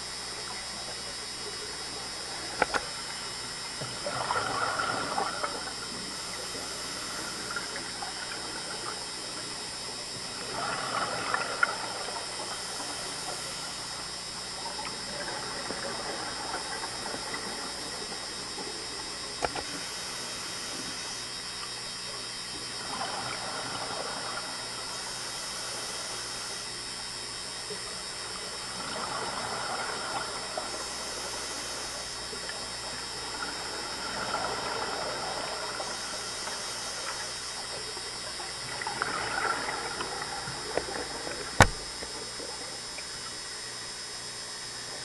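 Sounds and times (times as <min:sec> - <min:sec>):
sharp click: 0:41.6 - 0:41.8.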